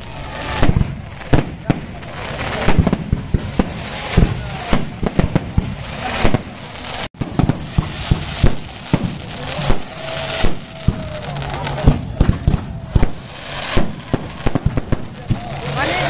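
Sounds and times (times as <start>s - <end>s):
fireworks bangs and crackles: 0.0s - 16.0s.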